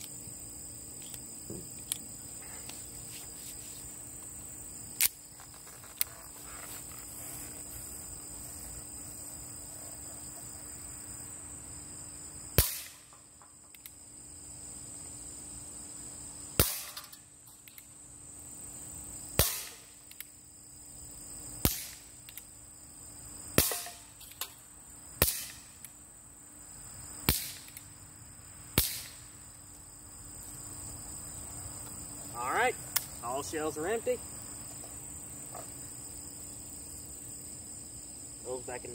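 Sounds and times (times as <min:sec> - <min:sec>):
bb gun shots: 0:12.6 - 0:13.0, 0:16.6 - 0:17.1, 0:19.4 - 0:19.8, 0:23.6 - 0:24.0, 0:28.8 - 0:29.2.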